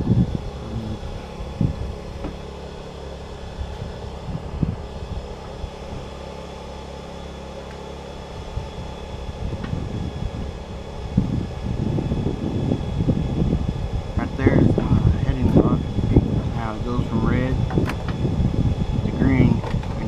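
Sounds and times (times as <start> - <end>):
steady mechanical hum: 0.0 - 20.0
wind buffeting microphone: 0.0 - 20.0.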